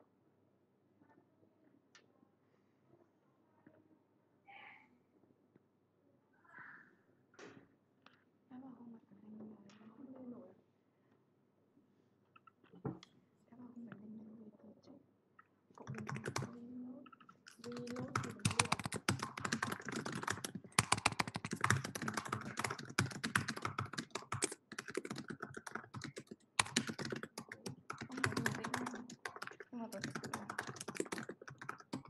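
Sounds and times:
fast typing on keyboard: 15.8s - 32.0s.

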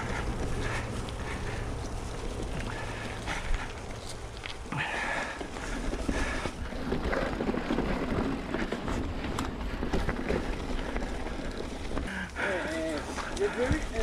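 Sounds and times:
brake squeals: 0.0s - 8.4s
bike clicks and rattles: 0.0s - 14.0s
bike tyre noise: 0.0s - 14.0s.

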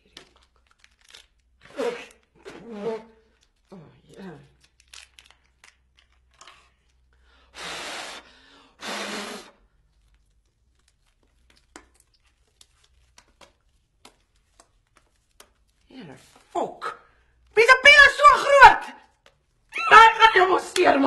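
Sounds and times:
wrapper crinkling and clicks: 0.0s - 2.3s, 4.4s - 7.1s, 9.8s - 16.4s
wrapper ripping: 0.0s - 2.6s, 4.5s - 6.7s.

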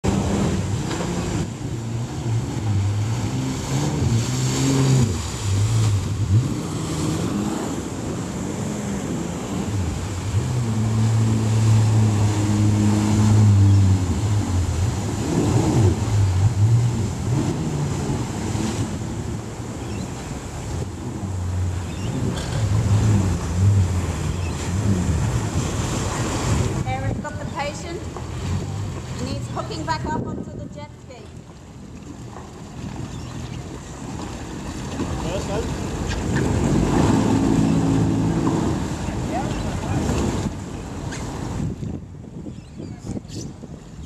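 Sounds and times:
jet ski engine revving: 0.0s - 30.7s, 31.4s - 44.0s
churning wake water: 0.0s - 44.0s.

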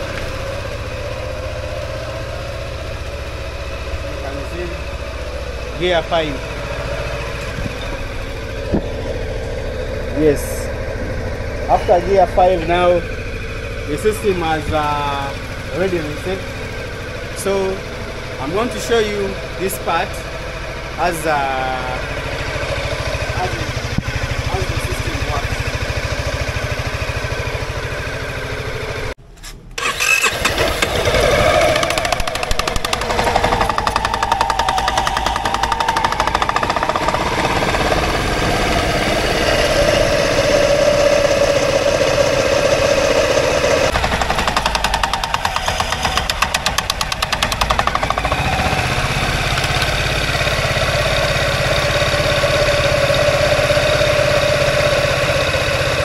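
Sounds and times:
scooter engine running: 0.0s - 29.2s, 29.8s - 56.0s
spinning pulleys and drive belt: 29.8s - 56.0s.

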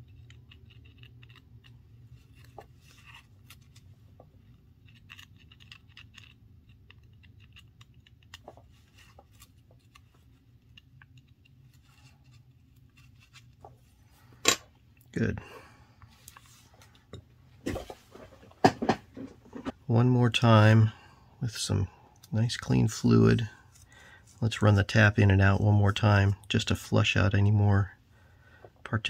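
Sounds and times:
metal tweezers clicking and scratching: 0.0s - 2.5s, 4.8s - 8.5s.

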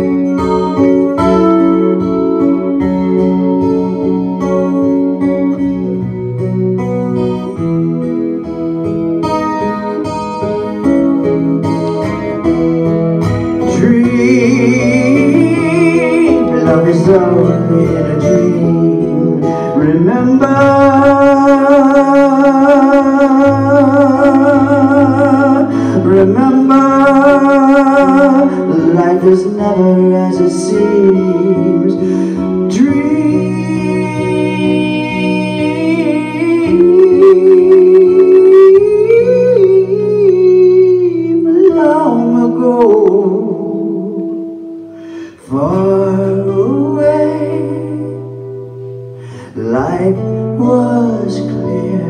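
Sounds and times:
electric guitar: 0.0s - 52.0s
man singing: 13.3s - 52.0s.

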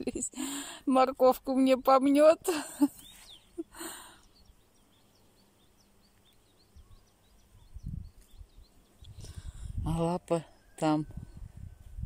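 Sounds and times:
small bird chirping: 2.8s - 12.0s.

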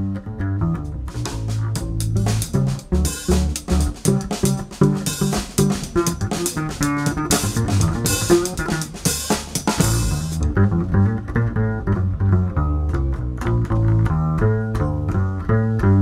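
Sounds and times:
double bass: 0.0s - 16.0s
plucked strings: 0.0s - 16.0s
drum kit and cymbals: 1.1s - 10.5s.

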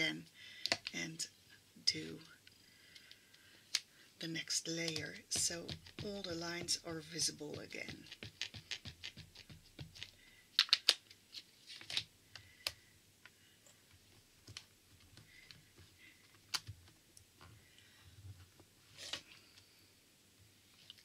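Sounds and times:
ink pad tapping on stamp: 4.9s - 10.2s.

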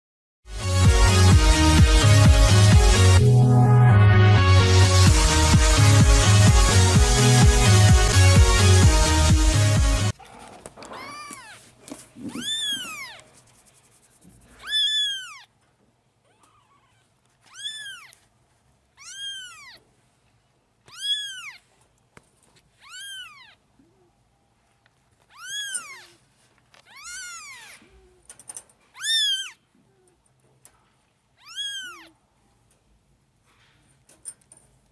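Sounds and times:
electronic music: 0.5s - 10.1s
kittens mewing: 10.4s - 13.3s, 14.5s - 15.5s, 16.2s - 18.2s, 19.0s - 19.8s, 20.9s - 21.6s, 22.8s - 24.2s, 25.3s - 26.2s, 26.9s - 28.3s, 28.9s - 30.2s, 31.4s - 32.2s.

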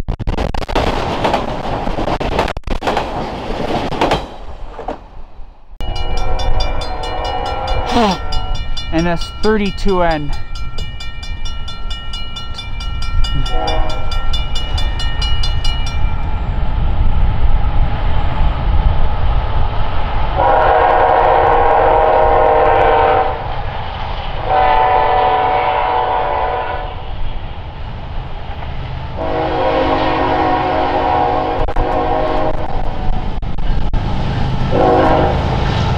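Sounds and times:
rumble of passing train: 0.8s - 35.9s
bell ringing rapidly: 5.8s - 16.3s
locomotive air horn: 6.8s - 8.5s, 13.4s - 14.2s, 20.4s - 23.4s, 24.4s - 27.0s, 29.2s - 33.0s, 34.7s - 35.5s.

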